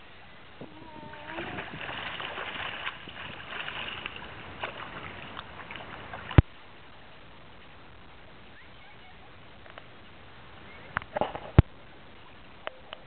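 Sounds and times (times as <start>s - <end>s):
water splashing from fin kicks: 0.6s - 6.6s.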